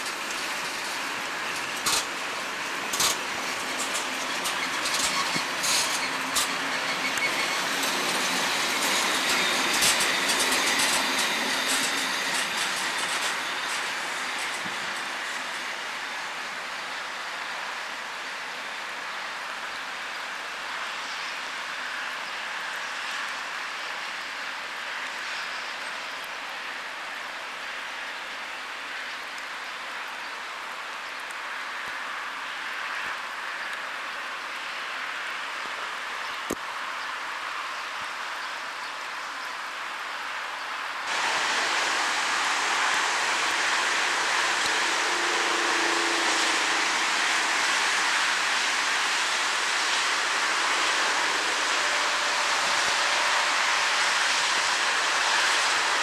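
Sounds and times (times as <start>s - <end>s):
freight train rolling past: 0.0s - 18.1s, 41.0s - 56.0s.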